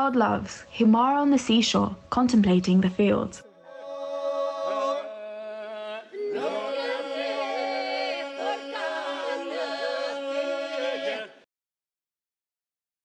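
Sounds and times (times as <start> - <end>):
unaccompanied polyphonic singing: 2.8 - 11.5.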